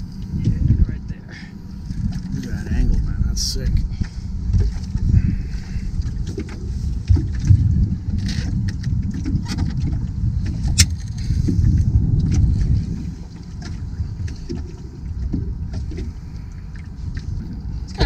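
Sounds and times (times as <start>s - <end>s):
boat motor rumbling: 0.0s - 18.0s.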